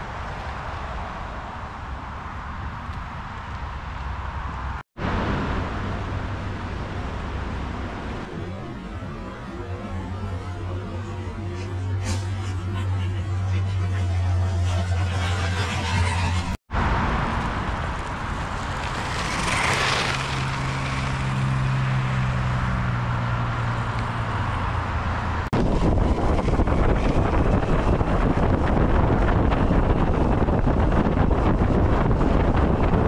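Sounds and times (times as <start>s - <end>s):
wheel and road noise: 0.0s - 33.0s
wind rushing on microphone: 24.1s - 33.0s.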